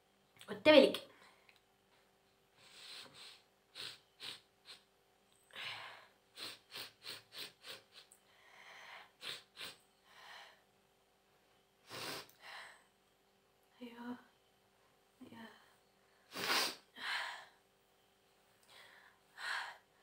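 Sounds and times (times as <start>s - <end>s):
woman sniffing sharply: 2.6s - 4.9s, 16.3s - 16.9s.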